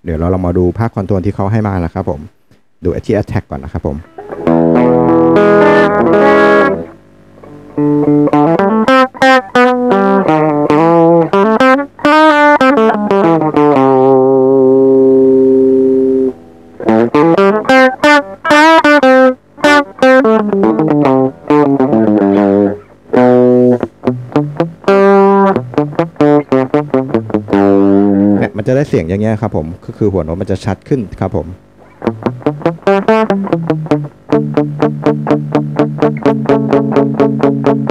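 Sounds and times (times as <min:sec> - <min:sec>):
compressed electric guitar notes: 0:04.0 - 0:28.7, 0:31.6 - 0:37.9.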